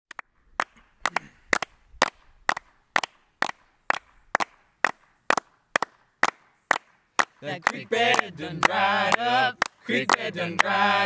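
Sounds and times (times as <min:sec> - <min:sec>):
people clapping hands: 0:00.1 - 0:11.0.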